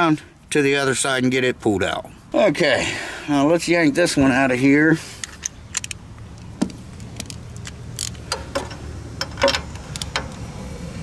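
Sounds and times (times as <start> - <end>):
hand tools clicking on metal: 5.2 - 6.0, 7.0 - 10.4
socket wrench ratcheting: 5.2 - 6.0, 7.0 - 10.4.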